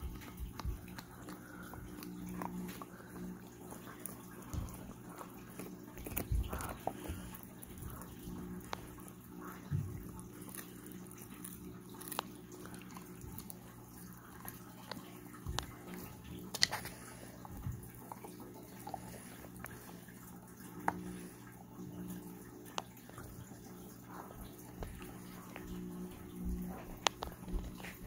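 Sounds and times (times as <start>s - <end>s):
dog chewing a hard treat: 0.0s - 20.0s.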